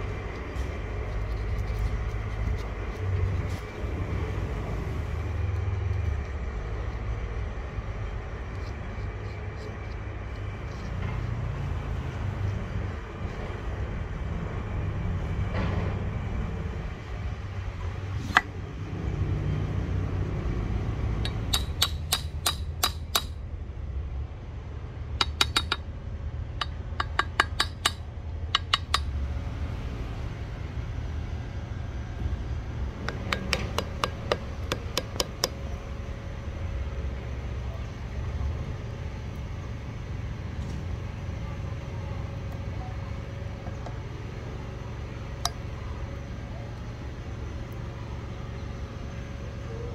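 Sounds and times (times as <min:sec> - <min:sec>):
low background rumble: 0:00.0 - 0:49.9
hammer tapping wooden wedges: 0:21.2 - 0:23.4, 0:25.2 - 0:25.8, 0:26.6 - 0:28.0, 0:28.6 - 0:29.1, 0:33.0 - 0:35.6.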